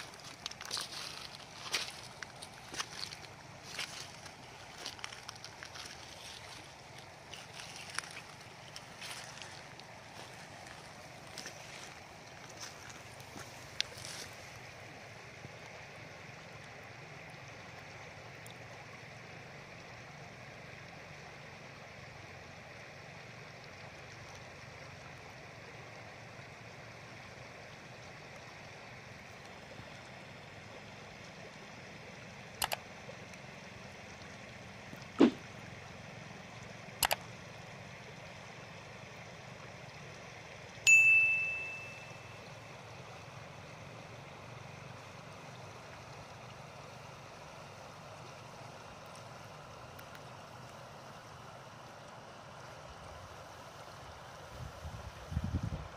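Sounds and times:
river water over pebbles: 0:00.0 - 0:55.9
bell ding: 0:40.9 - 0:42.4.

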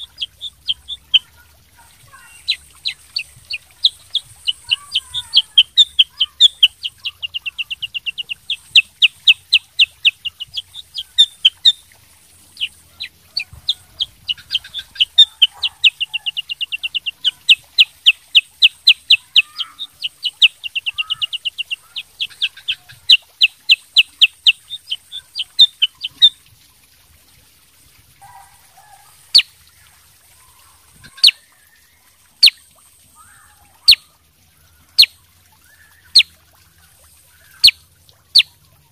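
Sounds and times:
bird chipping rapidly: 0:00.0 - 0:11.8, 0:12.4 - 0:26.4, 0:31.0 - 0:31.4.

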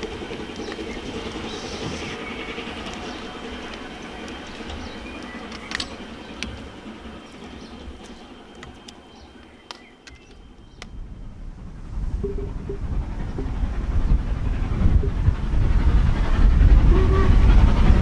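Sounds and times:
steam locomotive rumble: 0:00.0 - 0:18.0
sharp clicks: 0:02.8 - 0:06.7, 0:08.0 - 0:11.0.

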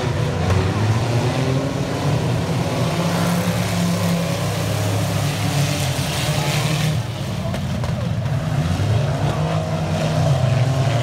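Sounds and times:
racing car engines droning: 0:00.0 - 0:11.0.

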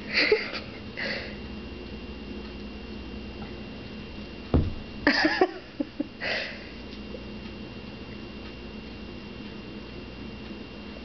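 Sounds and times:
faint steady hum: 0:00.0 - 0:11.0
thump: 0:04.5 - 0:04.9.

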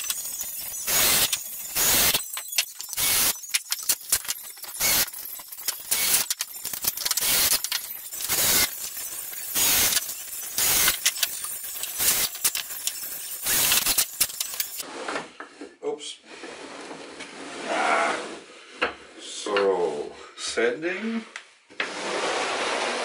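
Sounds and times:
drill driving screws: 0:00.0 - 0:14.8
screws jingling in a box: 0:00.0 - 0:14.8
sharp clicks: 0:09.6 - 0:14.8
brad nailer firing: 0:13.4 - 0:14.6.

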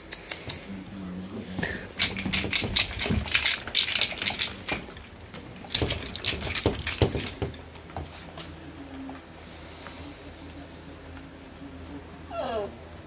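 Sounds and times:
puppies scrambling on bedding: 0:02.0 - 0:08.0.

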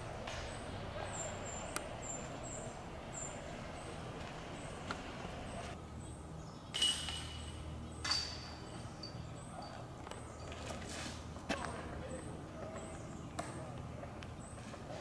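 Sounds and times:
metallic impacts with ringing: 0:06.7 - 0:09.7.

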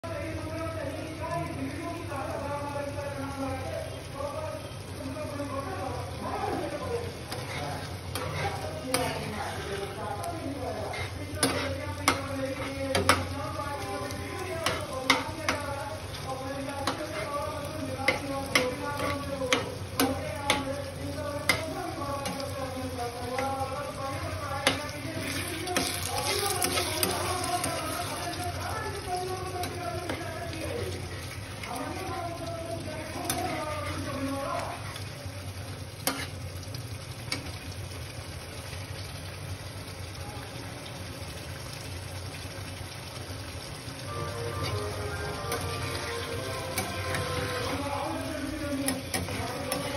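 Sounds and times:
curry sizzling: 0:00.0 - 0:49.9
metal spatula scraping pan: 0:07.3 - 0:09.9, 0:10.8 - 0:13.3, 0:24.6 - 0:28.3, 0:44.5 - 0:47.9, 0:48.9 - 0:49.9
faint music: 0:43.9 - 0:49.9.

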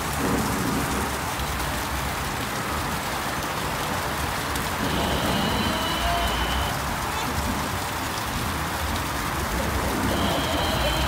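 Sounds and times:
water splashing over rocks: 0:00.0 - 0:11.0
faint thin high tone: 0:04.9 - 0:06.8.

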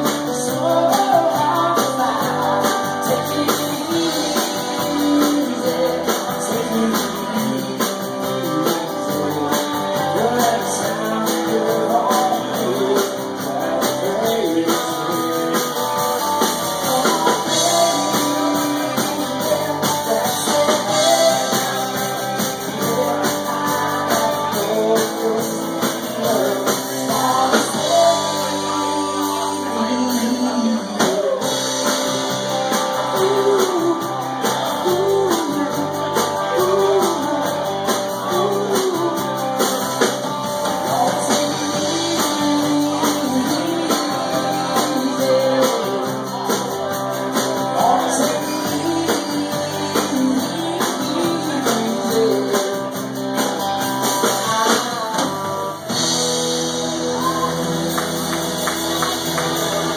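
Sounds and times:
man singing: 0:00.0 - 0:59.9
rock band playing: 0:00.0 - 0:59.9.

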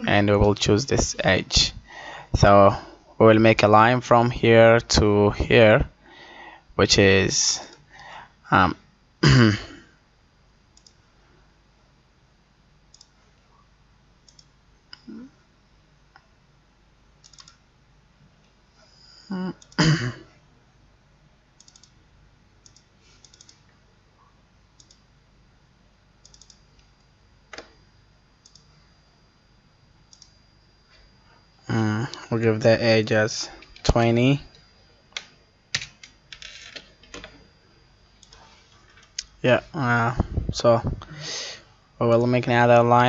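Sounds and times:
person clearing throat: 0:09.2 - 0:10.0, 0:19.3 - 0:20.4
computer mouse clicking: 0:10.8 - 0:11.0, 0:12.9 - 0:13.2, 0:14.2 - 0:14.5, 0:17.2 - 0:17.6, 0:21.6 - 0:22.0, 0:22.6 - 0:23.7, 0:24.8 - 0:25.1, 0:26.2 - 0:27.7, 0:28.4 - 0:28.7, 0:30.1 - 0:30.4, 0:38.2 - 0:38.4.

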